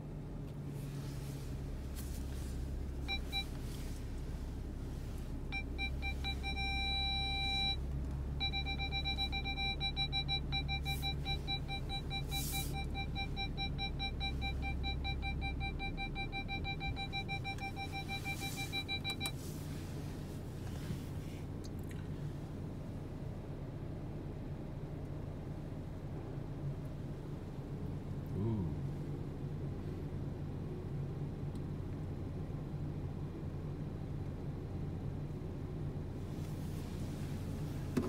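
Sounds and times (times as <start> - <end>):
low steady hum: 0.0 - 38.0
parking sensor beeping: 2.3 - 4.0, 5.0 - 19.9.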